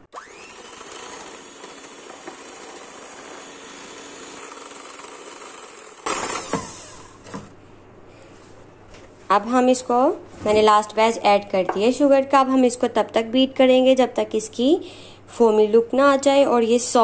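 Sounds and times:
electric hand mixer whisking: 0:00.0 - 0:07.3.

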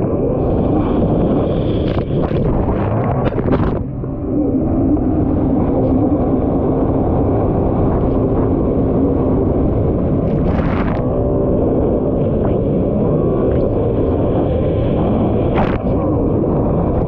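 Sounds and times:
rush of water and wind: 0:00.0 - 0:17.0
jet ski engine running hard: 0:00.3 - 0:17.0.

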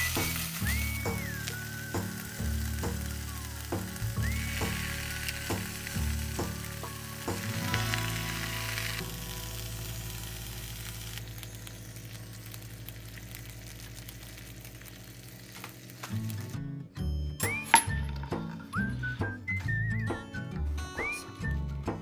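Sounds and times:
background music: 0:00.0 - 0:14.6, 0:15.3 - 0:22.0
food sizzling in a pan: 0:00.0 - 0:16.6.

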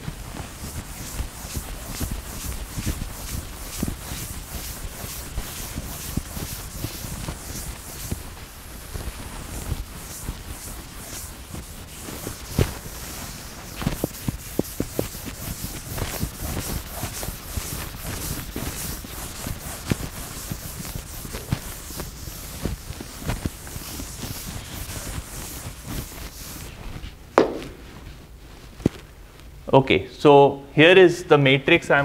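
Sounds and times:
chalkboard eraser rubbing: 0:00.4 - 0:27.8
footsteps: 0:26.9 - 0:29.5
knocks: 0:27.4 - 0:27.9.

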